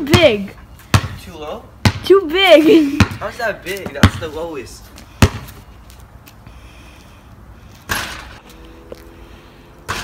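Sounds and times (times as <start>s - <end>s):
basketball bouncing on concrete: 0.0s - 5.6s.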